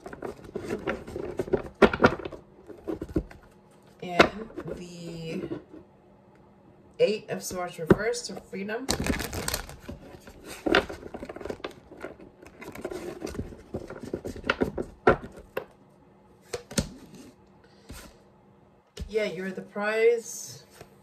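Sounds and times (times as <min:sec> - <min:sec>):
cards rustling: 0:08.9 - 0:15.5.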